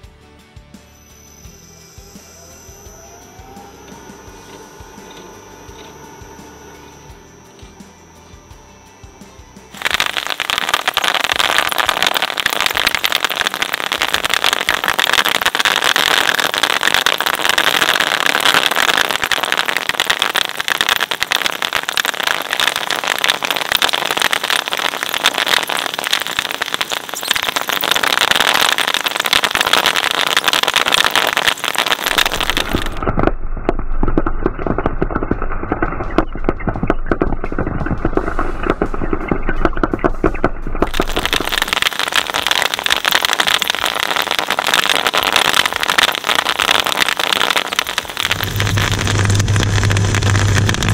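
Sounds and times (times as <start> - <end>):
low hum: 0.4 - 50.9
bubble wrap crackling: 9.8 - 33.1, 34.6 - 50.9.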